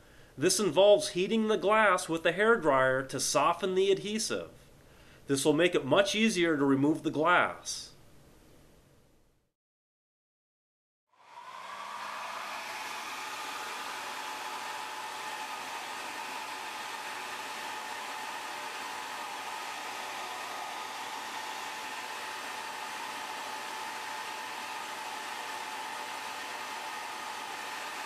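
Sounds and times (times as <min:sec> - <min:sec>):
hair dryer running: 0:11.2 - 0:28.0.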